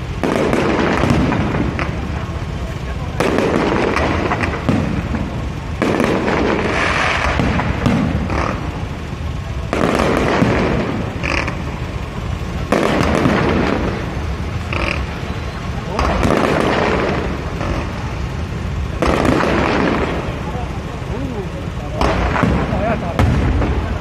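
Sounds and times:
fireworks crackling and booming: 0.0 - 24.0.

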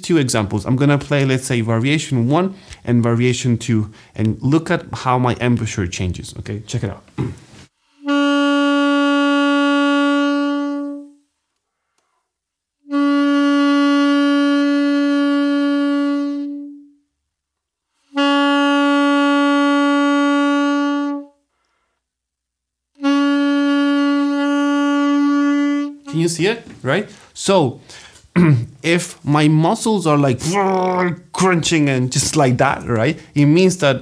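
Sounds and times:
saxophone long held note: 7.9 - 11.2, 12.8 - 17.0, 18.1 - 21.4, 23.0 - 26.4.

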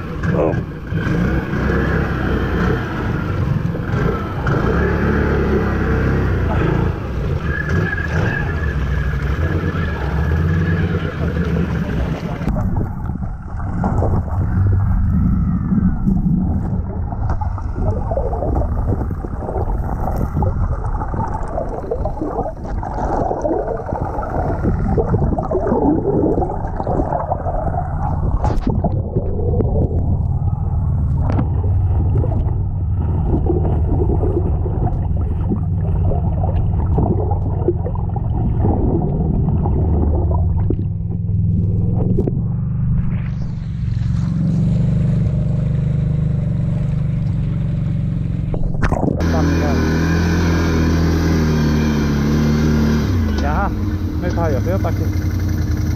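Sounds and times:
muffled engine hum underwater: 0.0 - 55.9
water bubbling and gurgling: 0.0 - 55.9.

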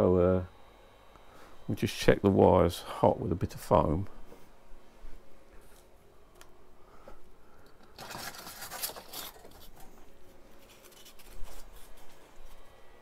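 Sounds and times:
polystyrene foam rustling and scraping: 7.9 - 12.7.

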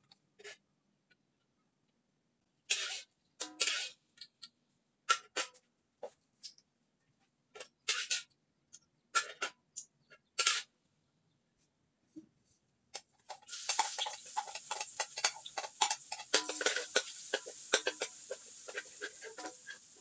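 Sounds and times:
metal ladle scraping a wok: 2.7 - 4.0, 13.3 - 20.0.

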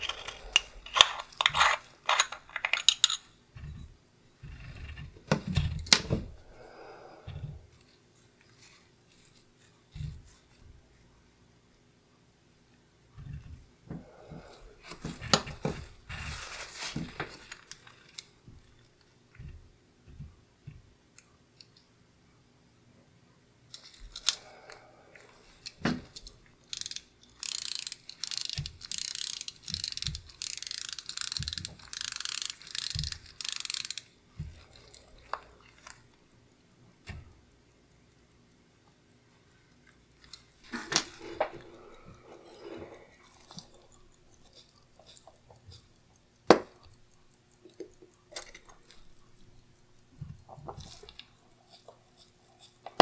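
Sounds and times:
watch crown winding ratchet: 0.0 - 6.7, 23.7 - 53.0
faint fast watch ticking: 3.3 - 53.0
light handling clicks: 23.7 - 53.0.

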